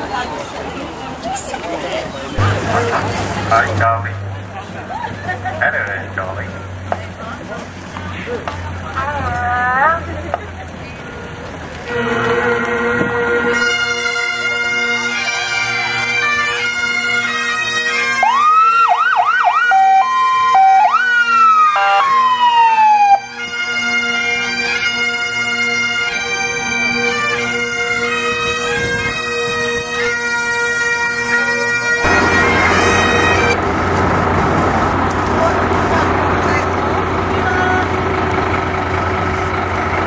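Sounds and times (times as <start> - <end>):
outdoor noise: 0.0 - 40.0
bagpipe music: 2.4 - 5.0, 11.0 - 33.7
fire engine siren: 11.0 - 40.0.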